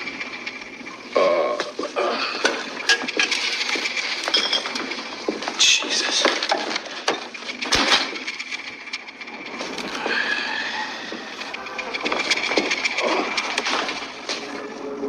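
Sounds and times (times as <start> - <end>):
rubbish rummaged and scattered: 1.6 - 8.8.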